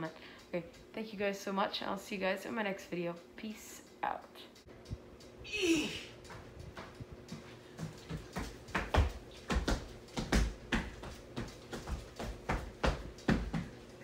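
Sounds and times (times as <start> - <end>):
feet stomping on floor: 6.3 - 13.8.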